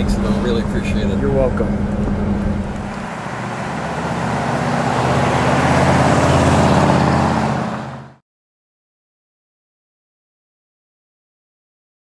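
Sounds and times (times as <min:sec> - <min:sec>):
car engine driving past: 0:00.0 - 0:08.2.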